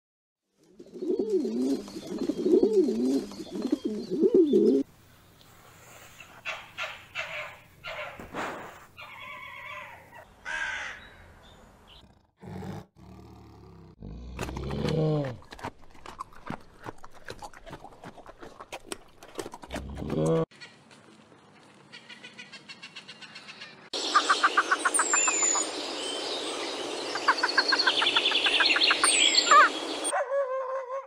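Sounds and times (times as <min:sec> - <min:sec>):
pigeons cooing: 0:00.8 - 0:04.9.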